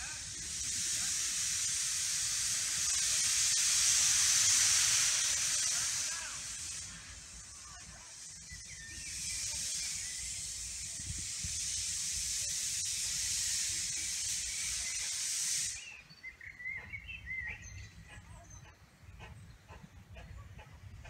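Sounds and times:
steam locomotive hissing steam: 0:00.0 - 0:21.0
birds chirping: 0:06.6 - 0:10.8, 0:13.9 - 0:21.0.

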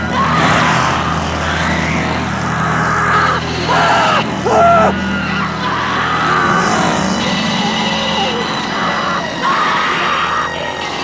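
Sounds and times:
woman screaming: 0:02.8 - 0:05.0.

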